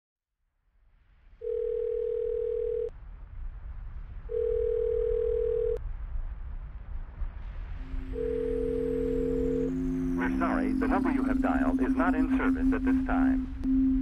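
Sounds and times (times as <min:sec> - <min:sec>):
low line hiss: 0:03.0 - 0:14.0.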